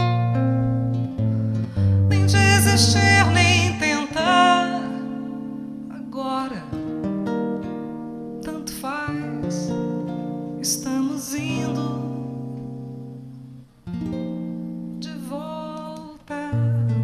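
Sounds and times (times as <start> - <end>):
acoustic guitar: 0.0 - 17.0
woman singing: 1.7 - 7.2, 8.2 - 12.8, 15.0 - 17.0.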